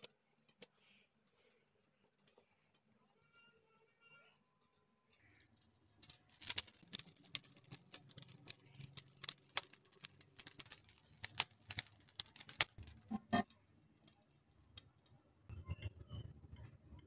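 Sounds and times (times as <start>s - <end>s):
parchment paper crinkling: 0.0s - 13.1s.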